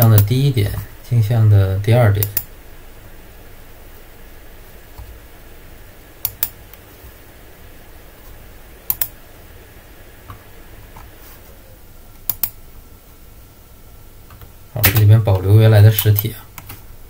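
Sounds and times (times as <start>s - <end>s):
faint low hum: 0.0s - 17.0s
computer mouse clicks: 2.2s - 2.5s, 6.2s - 6.8s, 8.9s - 9.2s, 12.2s - 12.6s.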